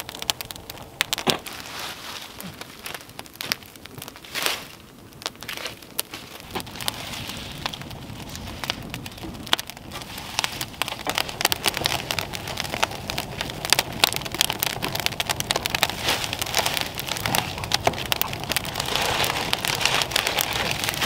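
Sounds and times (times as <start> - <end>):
wood fire crackling and popping: 0.0 - 21.0.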